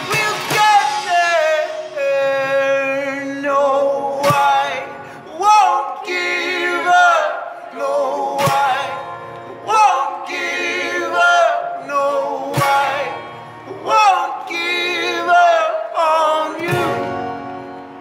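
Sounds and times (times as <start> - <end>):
sharp percussive hit: 0.0 - 3.1
voices singing wordless phrases: 0.0 - 17.4
strummed acoustic guitar: 0.0 - 18.0.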